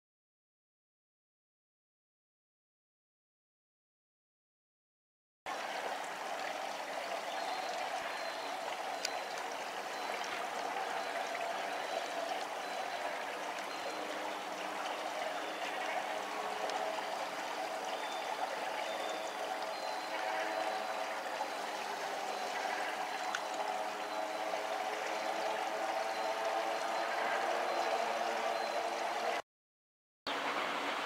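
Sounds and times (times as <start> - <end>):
water trickling: 5.5 - 29.4.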